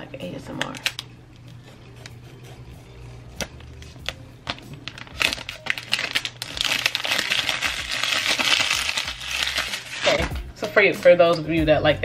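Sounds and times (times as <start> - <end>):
plastic wrap crinkling: 3.6 - 10.3.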